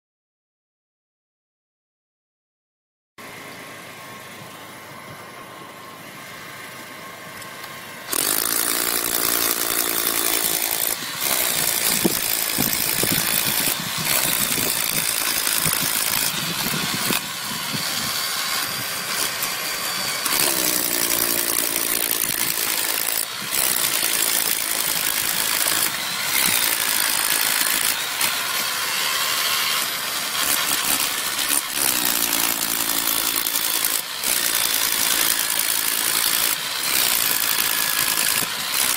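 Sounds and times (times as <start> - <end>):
electric drill boring into asphalt: 8.1 - 38.9.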